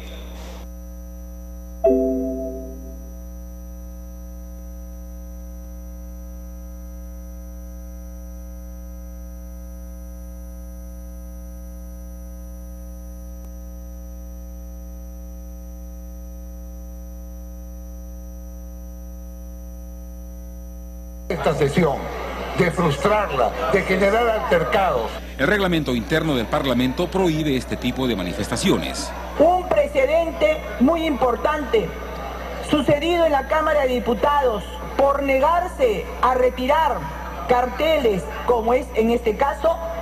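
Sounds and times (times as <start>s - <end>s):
faint high whine: 0.8s - 21.5s
keyboard chord: 1.8s - 3.0s.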